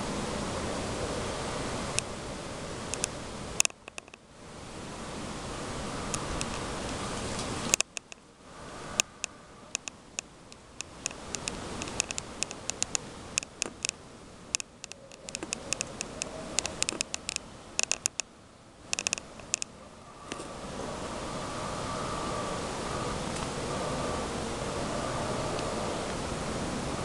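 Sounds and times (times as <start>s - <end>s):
steady hiss: 0.0s - 27.0s
squirrel gnawing clicks: 2.9s - 4.2s, 7.7s - 8.2s, 9.7s - 18.3s, 18.9s - 19.7s.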